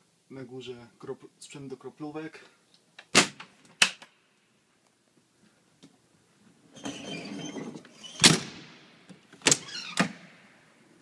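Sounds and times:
door squeaky scraping: 6.7 - 8.4, 9.5 - 10.1
door latching slam: 8.2 - 8.6, 9.4 - 10.3.

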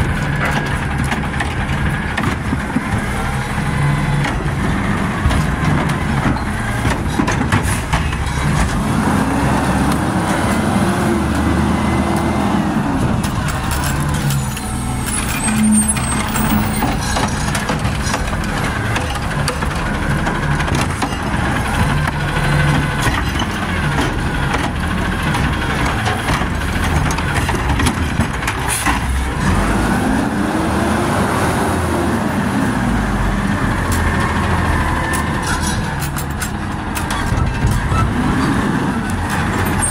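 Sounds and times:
knocks of carts and arm: 0.0 - 3.3, 4.1 - 8.9, 16.0 - 29.3
diesel engine idling: 0.0 - 29.9
garbage truck engine revving: 0.0 - 39.9.

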